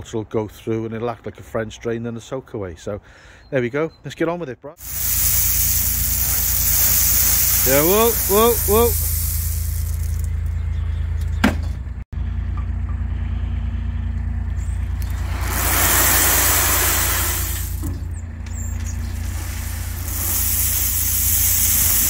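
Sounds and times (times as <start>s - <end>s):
gravel pouring out: 4.8s - 10.6s, 14.9s - 18.0s, 18.7s - 22.0s
mini dumper engine running: 4.8s - 22.0s.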